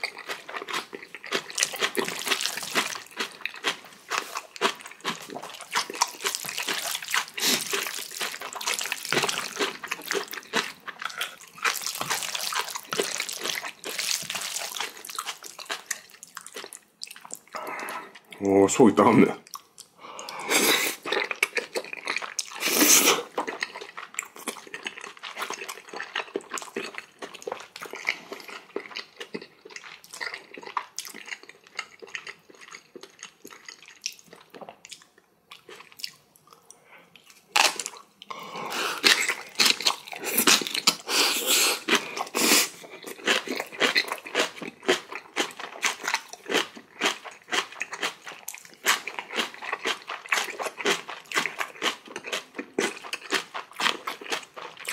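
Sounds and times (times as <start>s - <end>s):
person chewing and crunching food: 0.0s - 18.6s, 19.4s - 54.9s.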